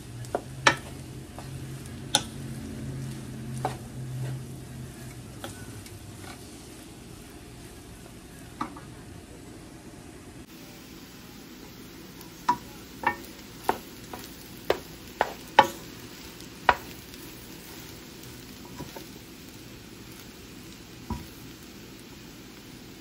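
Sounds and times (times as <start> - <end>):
rice sizzling in a pan: 0.0 - 23.0
wooden spoon knocking a pan: 0.2 - 2.4, 12.4 - 15.8, 16.6 - 16.9, 21.0 - 21.4.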